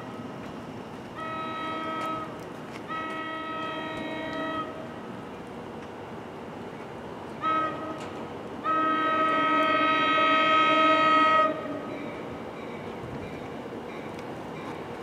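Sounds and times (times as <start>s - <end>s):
low rumble of oncoming train: 0.0s - 15.0s
train air horn blasts: 1.2s - 4.9s, 7.4s - 12.0s.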